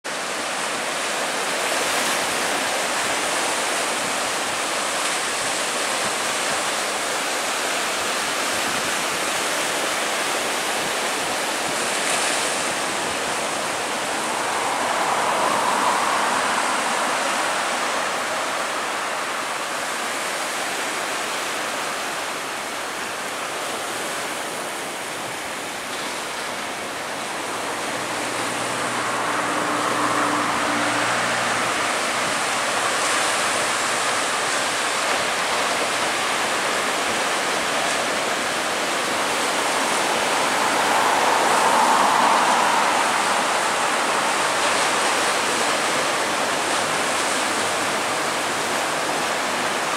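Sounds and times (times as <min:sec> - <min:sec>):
distant jet engine roar: 0:00.2 - 0:49.9
low engine hum tones: 0:12.0 - 0:20.2, 0:26.5 - 0:35.9, 0:38.8 - 0:48.7.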